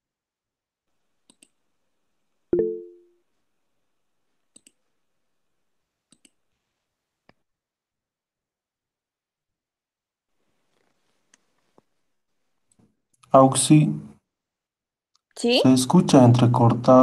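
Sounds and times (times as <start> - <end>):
notification chime: 2.6 - 3.1.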